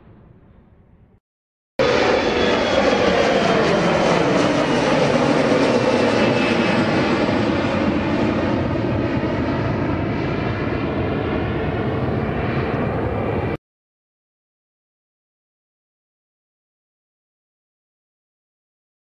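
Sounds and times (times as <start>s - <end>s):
jet airliner roar at take-off: 1.8s - 13.6s.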